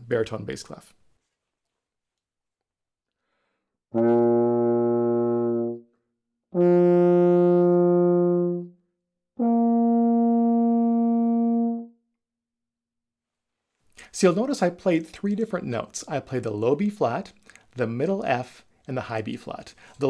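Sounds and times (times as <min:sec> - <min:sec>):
euphonium notes: 0:04.0 - 0:05.8, 0:06.6 - 0:08.7, 0:09.4 - 0:11.9.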